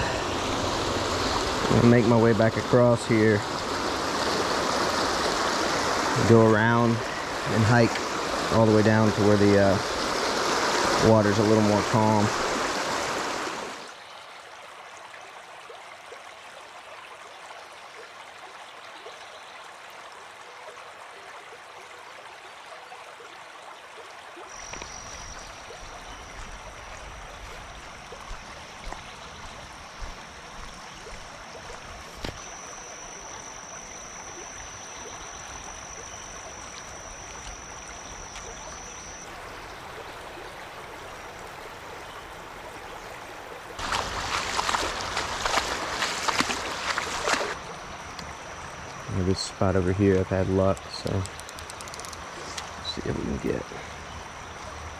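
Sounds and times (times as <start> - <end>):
river water rushing over rocks: 0.0 - 14.0, 24.6 - 49.0.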